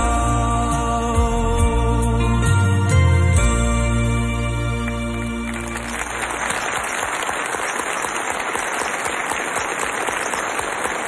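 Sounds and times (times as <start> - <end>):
studio audience applauding: 4.6 - 11.0.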